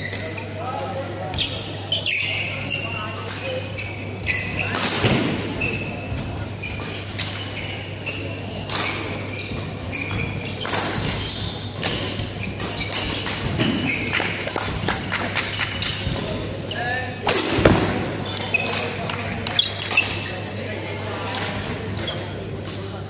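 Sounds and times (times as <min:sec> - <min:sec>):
low hum in hall: 0:00.0 - 0:23.0
shoes squeaking on court: 0:01.3 - 0:20.5
rackets striking shuttlecock: 0:17.2 - 0:19.2.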